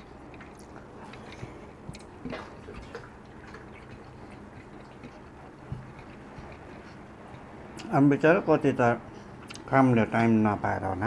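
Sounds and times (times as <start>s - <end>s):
fingers mixing rice on a plate: 0.0s - 7.9s.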